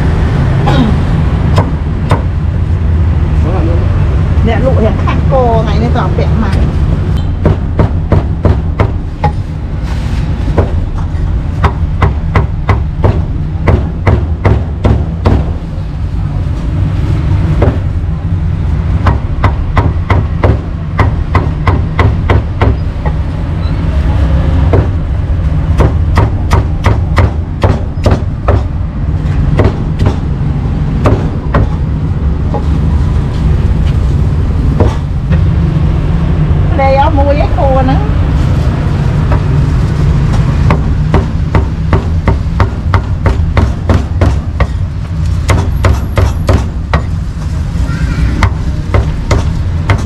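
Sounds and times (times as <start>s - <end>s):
steady low rumble: 0.0s - 50.0s
cleaver chopping meat: 40.7s - 44.7s, 48.4s - 50.0s.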